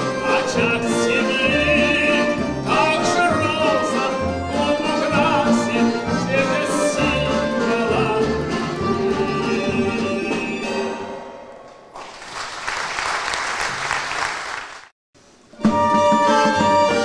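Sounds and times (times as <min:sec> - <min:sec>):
folk string ensemble: 0:00.0 - 0:11.0, 0:15.6 - 0:17.0
man singing with vibrato: 0:00.0 - 0:11.0.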